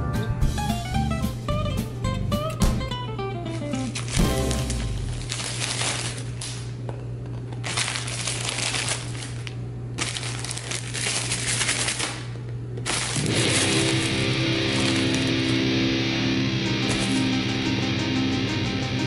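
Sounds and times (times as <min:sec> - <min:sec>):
plastic candy bag crinkling: 0:03.7 - 0:15.7, 0:16.9 - 0:17.3
steady low hum: 0:09.0 - 0:19.0.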